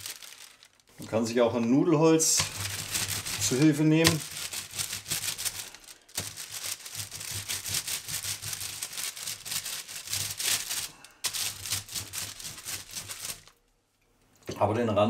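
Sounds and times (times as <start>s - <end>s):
paper crinkling: 0.0s - 1.4s, 2.2s - 13.6s
rolling pin on baking paper: 2.3s - 13.5s.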